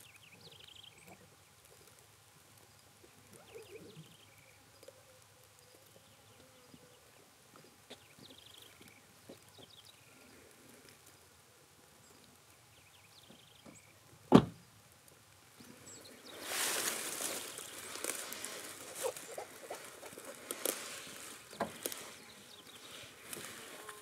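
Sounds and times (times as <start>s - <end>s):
rustling and crackling: 14.8s - 24.0s.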